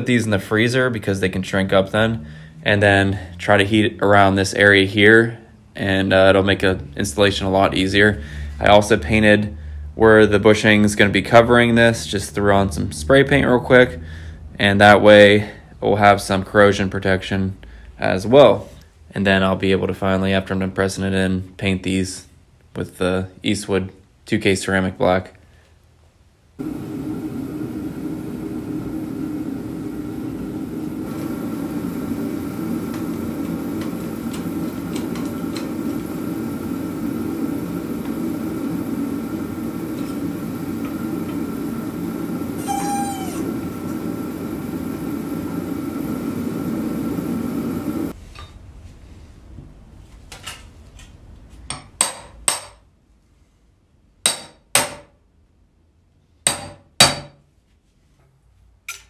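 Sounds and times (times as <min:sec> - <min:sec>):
brief squeak: 0:42.6 - 0:43.5
hammer striking metal: 0:54.2 - 0:55.1, 0:56.5 - 0:57.4.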